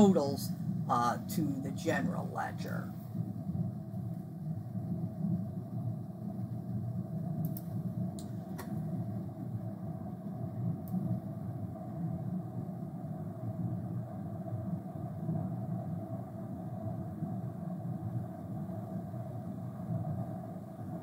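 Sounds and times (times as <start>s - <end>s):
room background rumble: 0.0s - 21.0s
computer mouse clicks: 7.4s - 8.7s.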